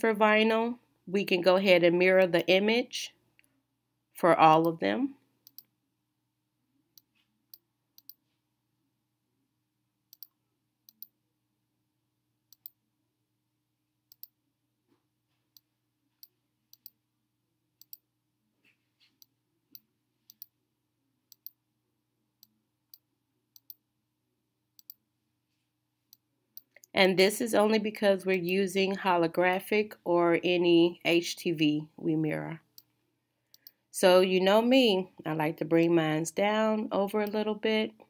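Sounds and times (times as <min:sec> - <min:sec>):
mouse clicks: 0:05.4 - 0:05.7, 0:07.0 - 0:08.2, 0:10.1 - 0:11.1, 0:24.8 - 0:25.0.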